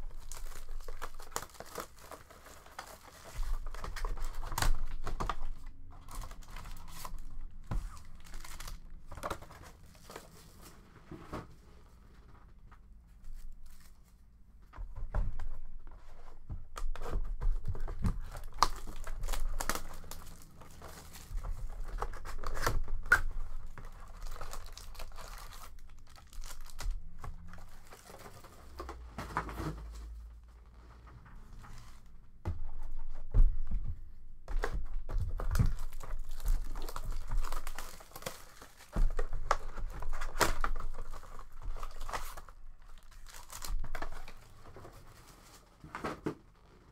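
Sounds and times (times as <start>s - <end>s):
foil packs rustling: 0.0s - 10.8s, 17.0s - 30.8s, 34.6s - 46.9s
plastic shrink-wrap crinkling: 0.0s - 10.8s, 17.0s - 30.9s, 34.6s - 45.8s.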